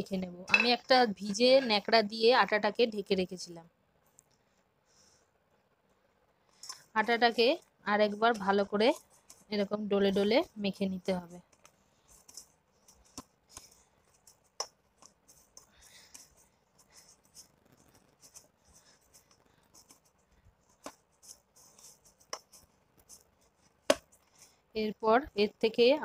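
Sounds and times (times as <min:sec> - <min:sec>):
hands kneading dough: 0:05.8 - 0:24.7.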